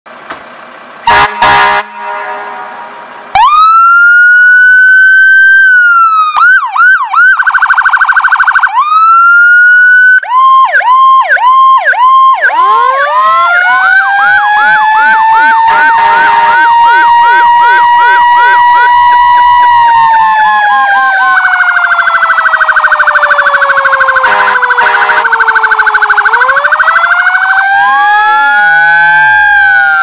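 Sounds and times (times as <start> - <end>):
horn blasts: 1.0 - 3.3, 15.5 - 19.0, 24.2 - 25.4
fire engine siren: 1.1 - 30.0.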